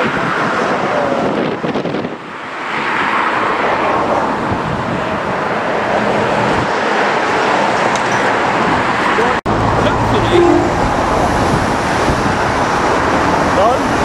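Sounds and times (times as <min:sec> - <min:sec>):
road traffic noise: 0:00.0 - 0:14.0.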